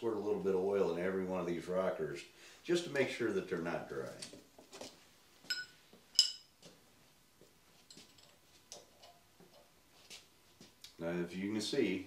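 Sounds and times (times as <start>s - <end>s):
wrench clinking on metal: 5.5s - 6.5s.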